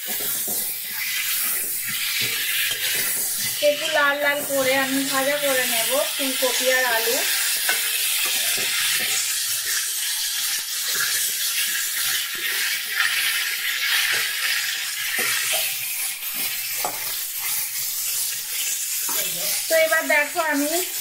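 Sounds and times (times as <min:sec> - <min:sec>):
metal spatula scraping a pan: 0:00.0 - 0:21.0
vegetables sizzling in oil: 0:00.0 - 0:21.0.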